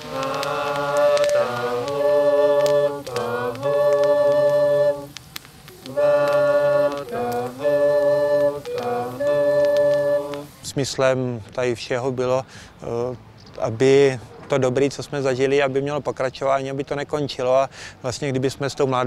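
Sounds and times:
voices singing in harmony: 0.0s - 10.6s.

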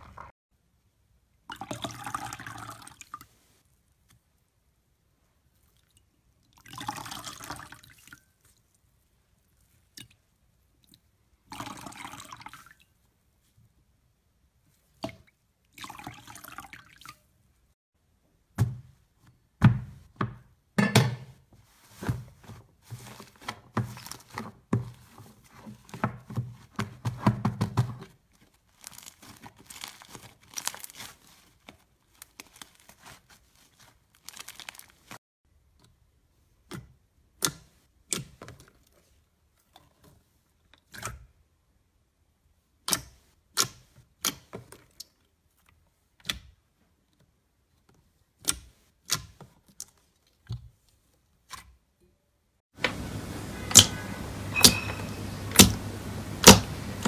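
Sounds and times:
slime squeezed crackling: 28.7s - 35.2s.

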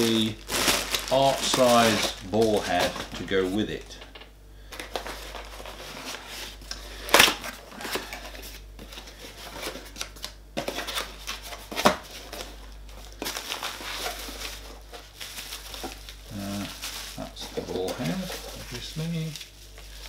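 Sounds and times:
cardboard tearing: 0.0s - 3.2s
cardboard rustling and scraping: 0.0s - 3.6s, 4.9s - 6.6s, 13.2s - 20.0s.

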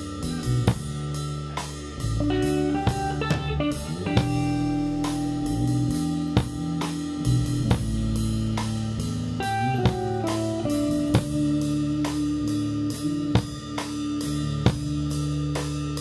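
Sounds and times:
electric guitar: 0.0s - 16.0s
held bass notes: 0.0s - 16.0s
drum beat: 2.1s - 15.7s.

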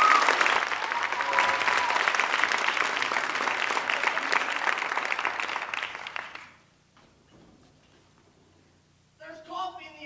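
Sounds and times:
audience applause: 0.0s - 6.7s.

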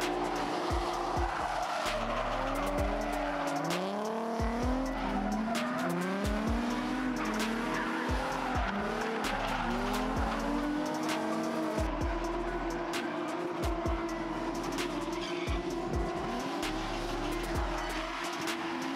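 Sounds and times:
tyre squeal: 0.0s - 11.3s, 12.6s - 18.9s
car engines revving: 0.0s - 18.9s.

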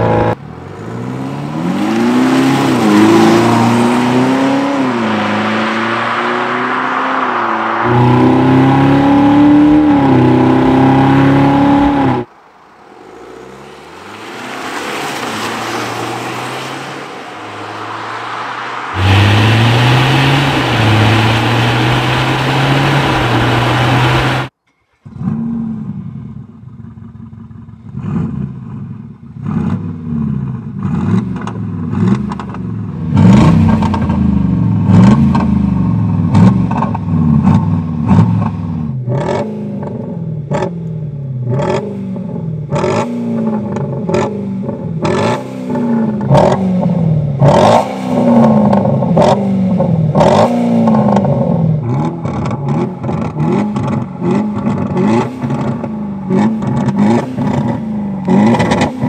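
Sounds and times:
synthesized engine revving: 16.1s - 24.5s.

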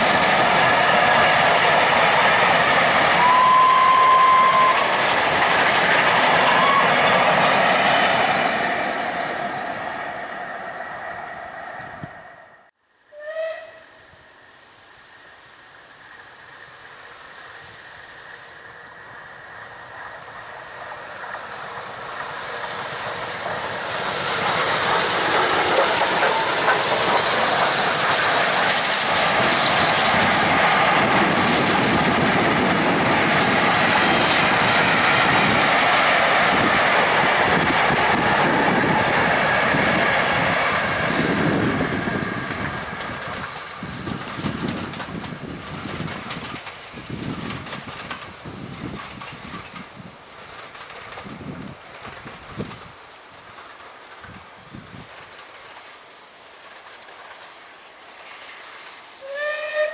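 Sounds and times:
steam hiss: 0.0s - 12.5s, 13.1s - 59.9s
steam locomotive passing: 0.0s - 59.9s
wheels clattering over rail joints: 41.0s - 55.9s.

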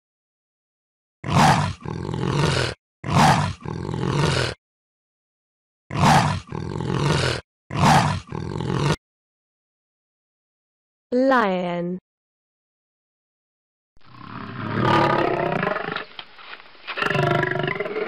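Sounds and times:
big cat growling roar: 1.2s - 4.6s, 5.9s - 9.0s, 14.1s - 16.1s, 17.0s - 18.0s.

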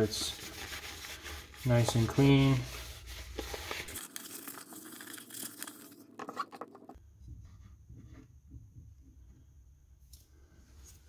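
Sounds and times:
cloth rag rubbing on plastic: 0.0s - 5.5s.

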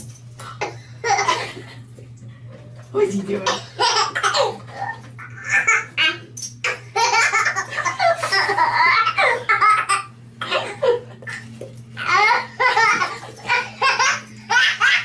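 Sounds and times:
baby laughing: 1.0s - 1.6s, 3.5s - 15.0s.

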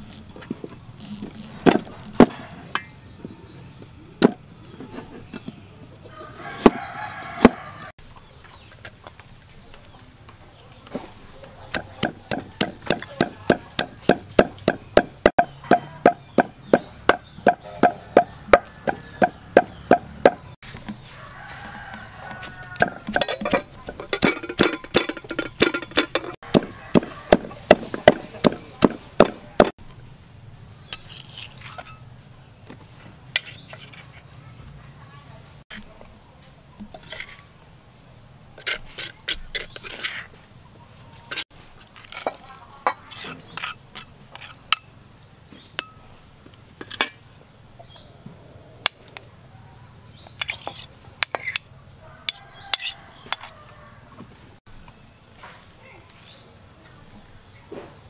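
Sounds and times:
chickens calling: 2.5s - 24.1s, 26.2s - 29.7s
cleaver chopping on cutting board: 11.7s - 20.4s, 26.5s - 29.7s
pestle pounding in mortar: 11.7s - 20.6s, 22.2s - 29.7s.

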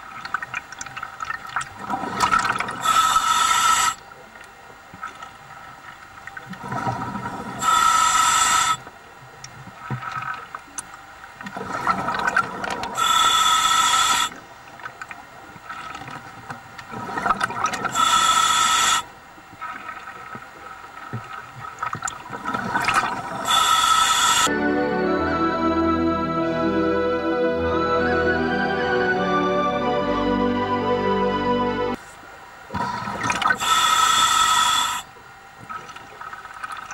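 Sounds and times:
exhaled bubbles from scuba regulator: 0.0s - 4.1s, 6.4s - 8.8s, 11.5s - 14.5s, 15.6s - 24.5s, 32.7s - 35.0s
diver inhaling through regulator: 2.8s - 4.0s, 7.6s - 8.9s, 13.0s - 14.4s, 17.9s - 19.1s, 23.4s - 24.5s, 32.7s - 35.1s.

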